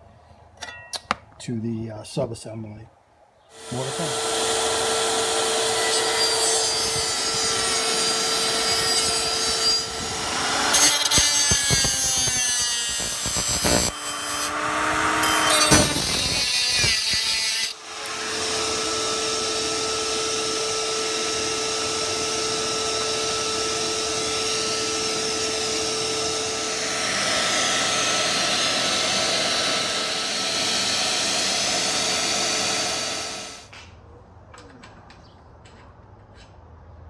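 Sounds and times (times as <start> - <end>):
angle grinder cutting steel: 3.6 - 33.7.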